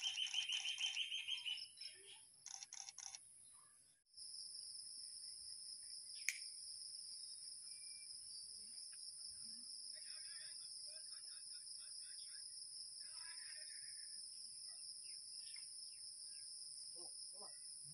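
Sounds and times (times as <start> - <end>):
faint bird chirps: 0.0 - 4.0, 7.3 - 10.2
sharp click: 6.2 - 6.5.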